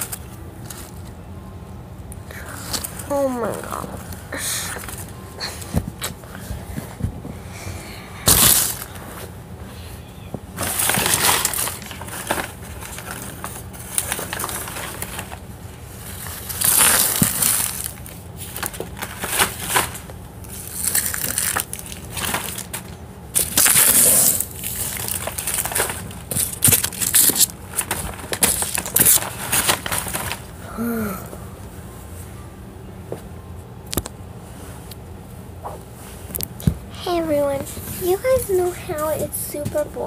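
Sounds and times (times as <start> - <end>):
rustling and crunching of items: 0.0 - 1.3, 2.3 - 32.4, 33.9 - 40.0.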